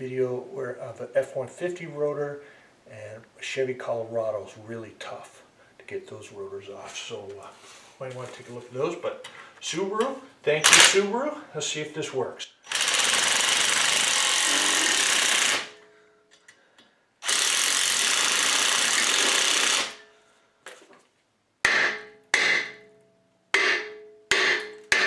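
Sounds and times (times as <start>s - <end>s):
impact driver running: 12.7s - 15.8s, 17.2s - 20.0s
hammer striking metal rotor: 21.6s - 25.0s.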